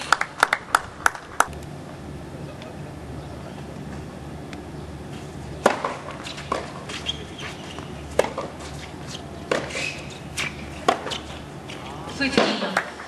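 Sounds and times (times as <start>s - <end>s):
racket hitting tennis ball: 5.2s - 13.0s
tennis ball bouncing: 5.6s - 13.0s.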